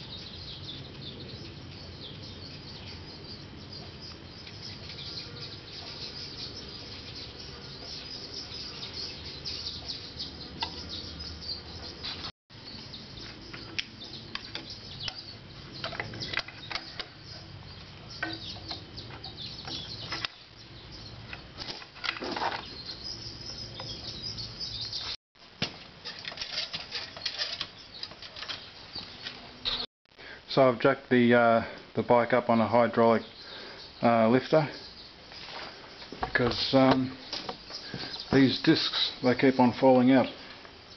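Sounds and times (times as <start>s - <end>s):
brush scraping on metal discs: 26.0s - 28.7s
metal plates clinking: 26.0s - 28.7s.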